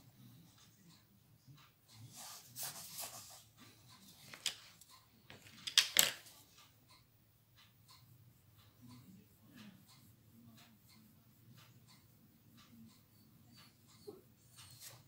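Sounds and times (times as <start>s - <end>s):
pencil scratching on paper: 2.0s - 4.9s.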